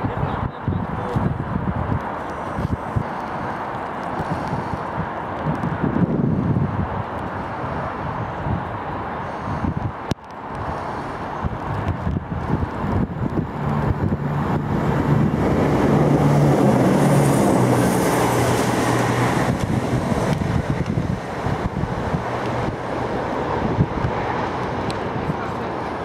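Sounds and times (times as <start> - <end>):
wind buffeting microphone: 0.0 - 26.0
steam locomotive approaching: 13.6 - 26.0.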